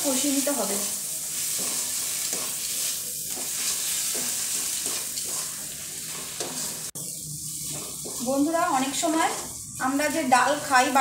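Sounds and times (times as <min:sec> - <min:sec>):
masala sizzling in oil: 0:00.0 - 0:11.0
wooden spatula scraping pan: 0:01.4 - 0:06.9.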